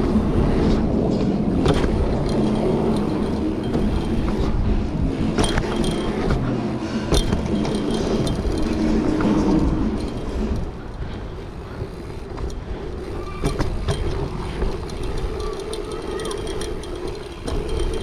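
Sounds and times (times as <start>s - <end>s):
bike tyres rolling over dirt: 7.2s - 18.0s.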